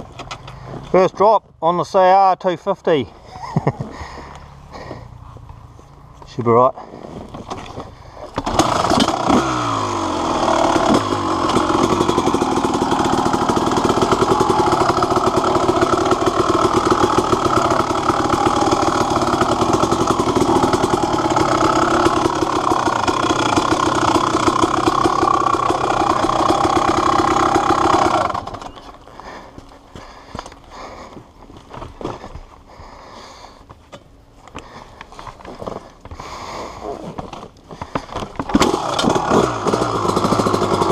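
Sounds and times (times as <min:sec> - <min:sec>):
dirt bike engine revving: 0:08.4 - 0:28.9, 0:38.4 - 0:40.9.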